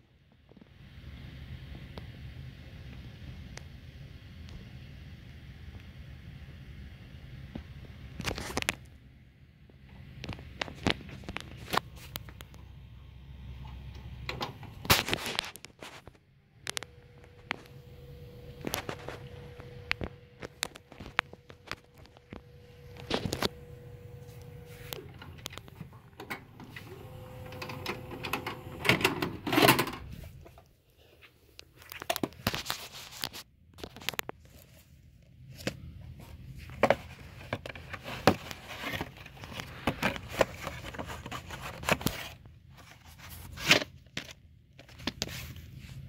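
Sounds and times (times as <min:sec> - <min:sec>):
plastic cassette case handling: 0:10.2 - 0:12.6, 0:14.3 - 0:17.8, 0:18.4 - 0:30.6, 0:31.6 - 0:34.7, 0:36.7 - 0:45.5.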